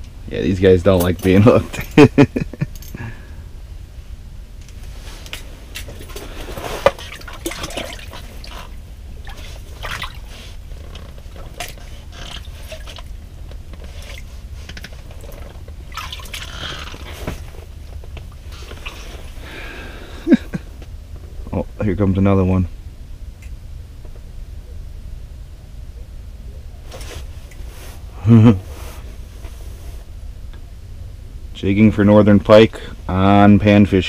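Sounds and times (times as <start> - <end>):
water splashing and dripping: 6.8 - 10.3, 15.4 - 17.0.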